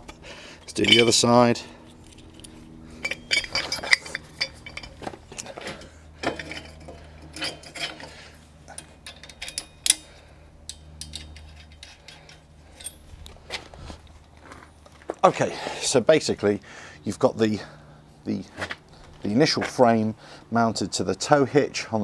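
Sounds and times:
metal bolts clinking: 0:00.6 - 0:13.2.

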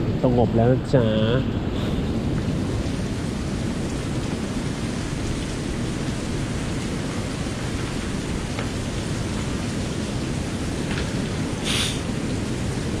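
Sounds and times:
sea surf: 0:00.0 - 0:13.0
wind: 0:00.0 - 0:13.0.

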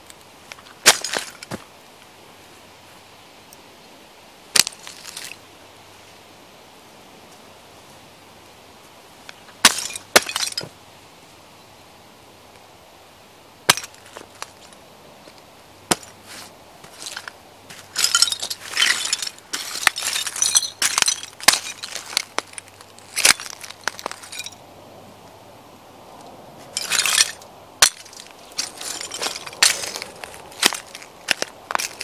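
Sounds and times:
boots crunching on broken china: 0:00.6 - 0:01.6, 0:09.6 - 0:10.7, 0:15.9 - 0:24.6, 0:26.7 - 0:32.0.

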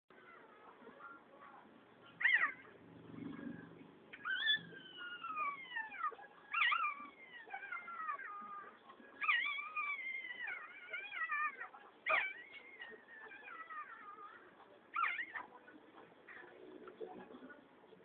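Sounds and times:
puppies crying and whining: 0:02.2 - 0:02.7, 0:04.2 - 0:15.5.

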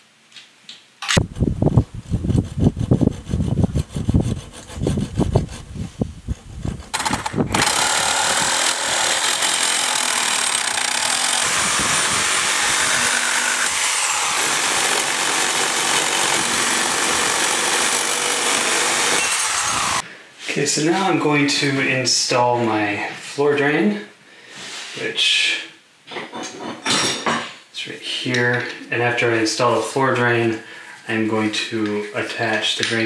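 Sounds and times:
reciprocating saw cutting pipe: 0:02.2 - 0:20.0
hacksaw on metal pipe: 0:06.9 - 0:20.0.

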